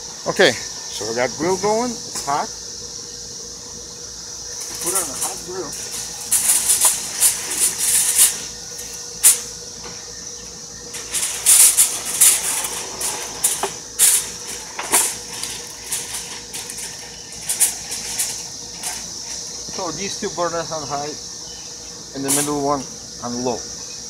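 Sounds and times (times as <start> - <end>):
steady high hiss: 0.0 - 24.0
aluminium foil crinkling: 4.6 - 9.4.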